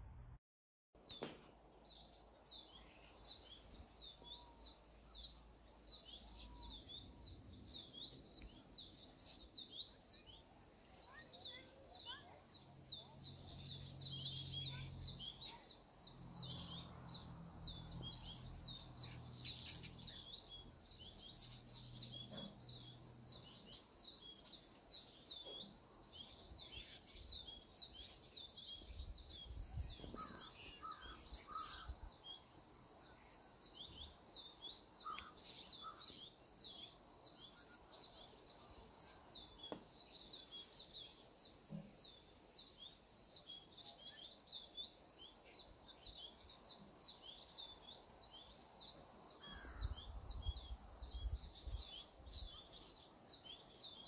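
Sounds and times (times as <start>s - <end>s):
faint low hum: 0.0s - 0.4s
small birds chirping: 1.0s - 54.0s.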